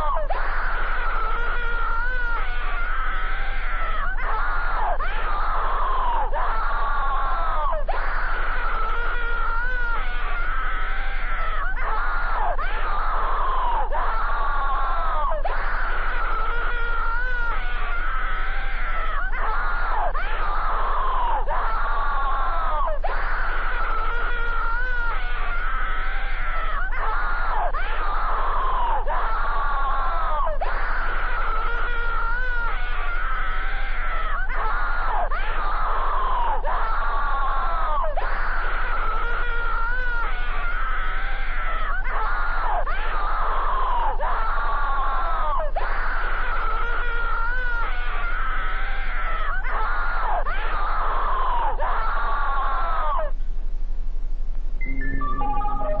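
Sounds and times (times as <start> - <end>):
person screaming: 55.3 - 56.0.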